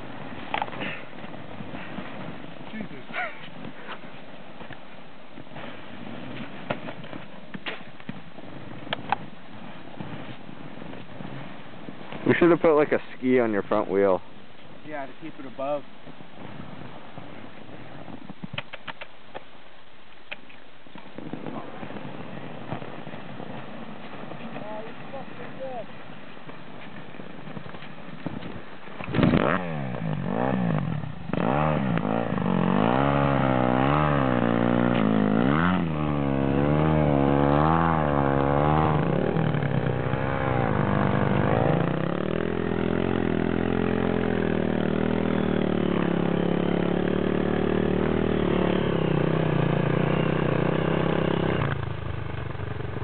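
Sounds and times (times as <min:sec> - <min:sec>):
dirt bike engine revving: 0:29.0 - 0:53.0.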